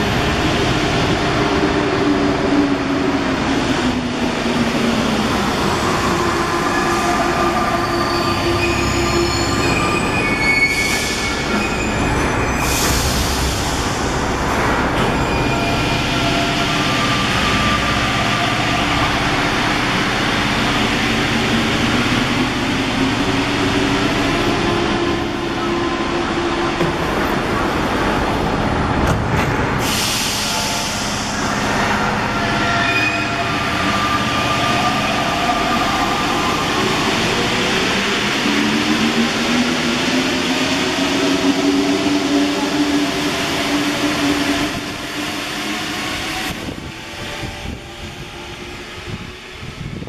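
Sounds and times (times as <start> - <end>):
train rumbling and whining: 0.0 - 50.0.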